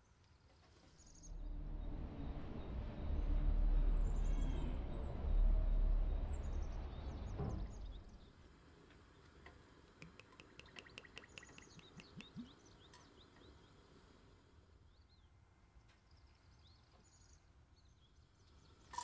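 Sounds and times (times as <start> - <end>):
low outdoor rumble: 1.0 - 10.0
small birds chirping: 7.7 - 19.0.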